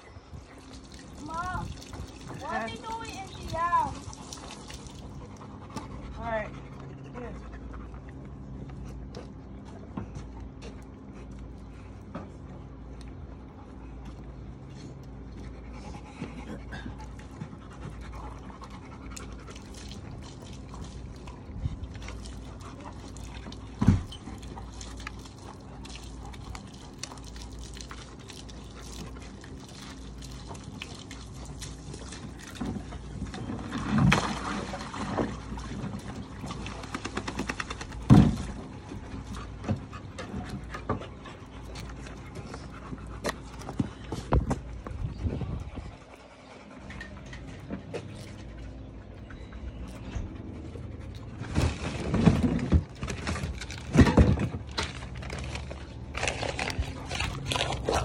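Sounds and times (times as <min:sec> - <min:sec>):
dog panting: 0:02.1 - 0:09.4, 0:13.4 - 0:33.1, 0:36.4 - 0:51.4.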